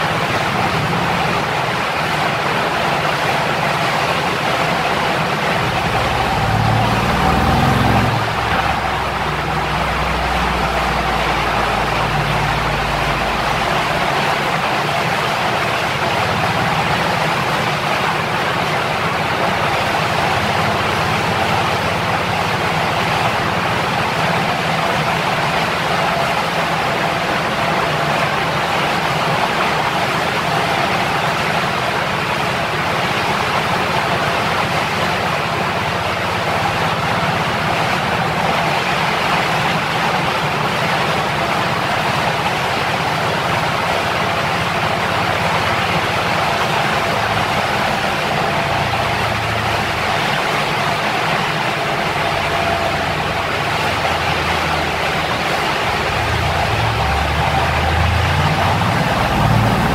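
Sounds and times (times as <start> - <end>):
loud rushing noise: 0.0 - 59.9
car engine revving: 4.6 - 14.9, 43.8 - 59.9.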